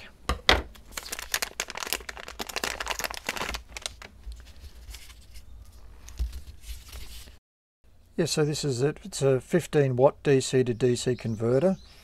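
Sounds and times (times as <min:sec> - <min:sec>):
plastic bag crinkling: 0:00.7 - 0:05.2.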